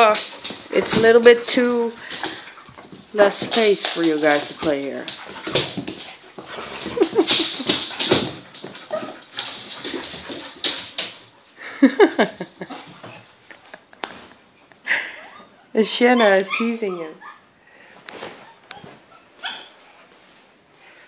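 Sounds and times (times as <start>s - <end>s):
dogs play-fighting vocal noises: 2.0s - 3.1s, 4.5s - 11.3s.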